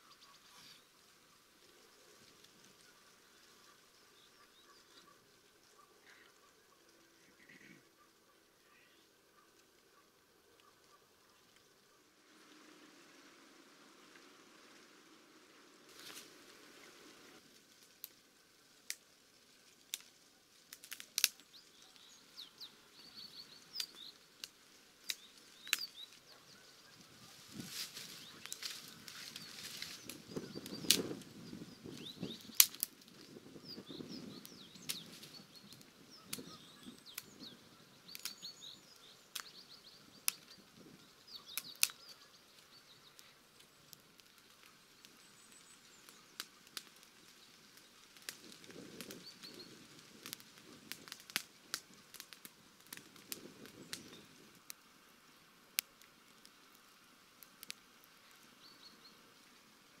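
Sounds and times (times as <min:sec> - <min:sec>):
faint bird chirps: 0:00.0 - 0:17.4, 0:21.2 - 0:51.1, 0:58.2 - 0:59.6
wood fire crackling and popping: 0:00.4 - 0:06.9, 0:12.9 - 0:54.9, 0:55.6 - 0:58.8
footsteps rustling dry leaves: 0:15.8 - 0:22.1, 0:23.6 - 0:33.6.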